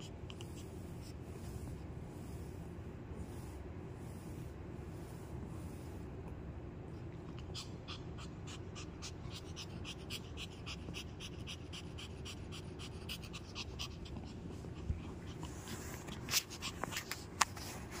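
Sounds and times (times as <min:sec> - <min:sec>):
puppy panting: 0:00.0 - 0:02.7, 0:06.9 - 0:18.0.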